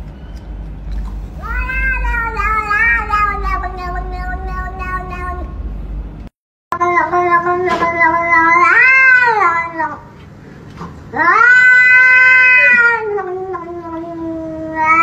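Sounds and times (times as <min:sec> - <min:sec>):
cat yowling meows: 0:01.4 - 0:05.5, 0:06.8 - 0:10.0, 0:11.2 - 0:15.0.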